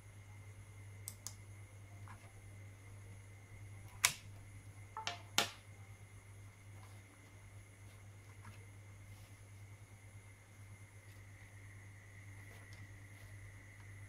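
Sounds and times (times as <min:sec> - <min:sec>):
low electrical hum: 0:00.0 - 0:14.0
mouse clicks: 0:01.0 - 0:01.4.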